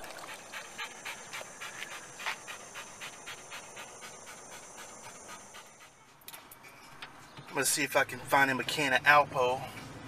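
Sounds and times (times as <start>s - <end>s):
dog panting: 0.0s - 8.0s.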